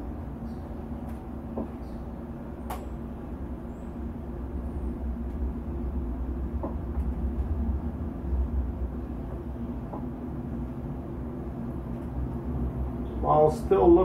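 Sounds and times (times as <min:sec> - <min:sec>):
low rumble: 0:03.2 - 0:13.6.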